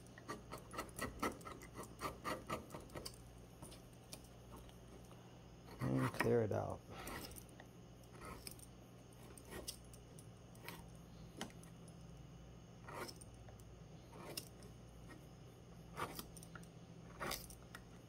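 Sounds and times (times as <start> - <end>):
faint low hum: 0.0 - 18.0
gouge scraping wood: 0.2 - 3.1, 5.7 - 6.4, 7.0 - 7.4, 8.1 - 8.6, 9.2 - 9.8, 12.8 - 13.3, 14.1 - 15.3, 15.9 - 16.3, 17.1 - 17.5.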